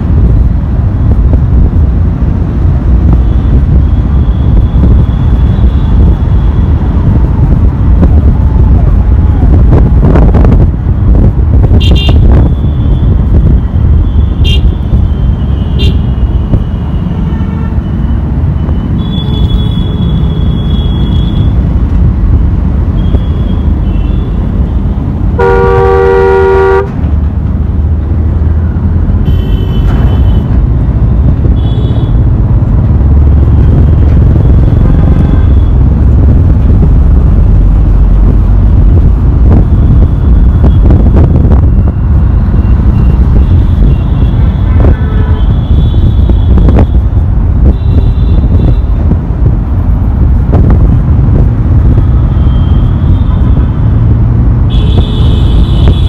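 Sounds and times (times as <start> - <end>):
road traffic rumble: 0.0 - 56.0
short horn toots: 25.4 - 26.9
long vehicle horn blast: 25.4 - 27.0, 54.7 - 56.0.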